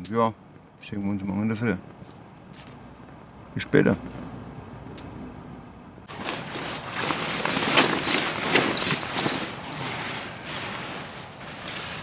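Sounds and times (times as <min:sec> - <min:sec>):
sleeping bag rustling: 0:06.1 - 0:12.0.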